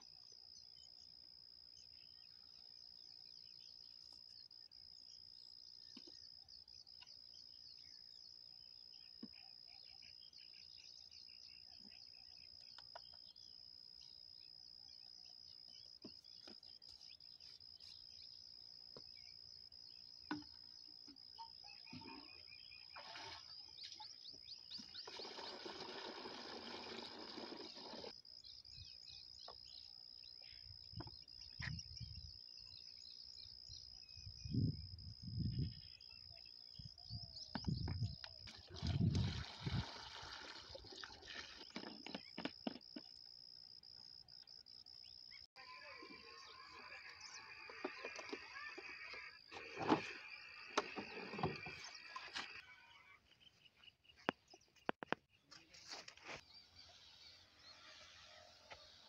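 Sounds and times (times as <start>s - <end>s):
faint chirps and ticks: 0.0s - 22.8s, 27.2s - 38.7s, 50.2s - 59.0s
high-pitched insect drone: 45.0s - 53.2s, 56.5s - 59.0s.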